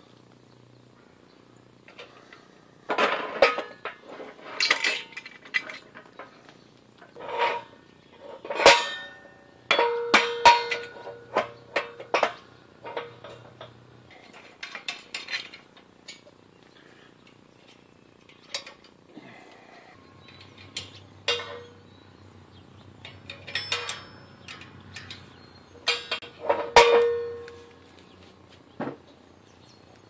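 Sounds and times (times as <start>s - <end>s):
metal parts clinking: 2.9s - 6.3s, 7.2s - 16.3s, 20.2s - 21.9s, 23.0s - 27.6s
ringing metal clang: 8.4s - 16.2s, 20.2s - 22.0s, 23.0s - 27.8s.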